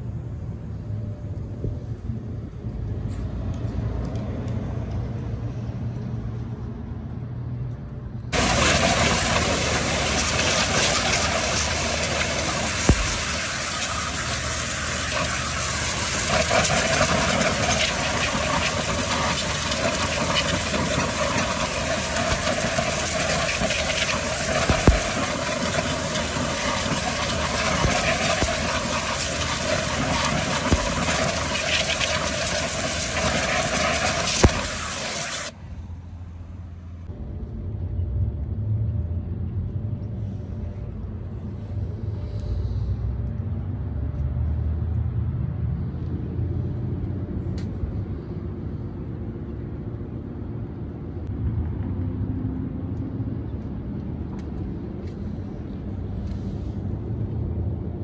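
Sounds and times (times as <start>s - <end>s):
pressure washer spray hiss: 8.4s - 35.5s
steady hum: 8.4s - 36.5s.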